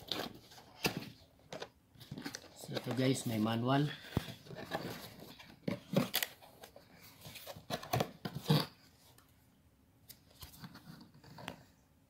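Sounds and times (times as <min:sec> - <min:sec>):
paper and cardboard rustling: 0:00.0 - 0:08.7.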